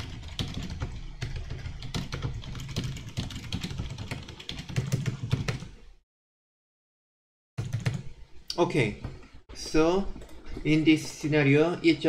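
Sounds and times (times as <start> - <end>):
computer keyboard typing: 0.0 - 5.8, 7.6 - 8.1.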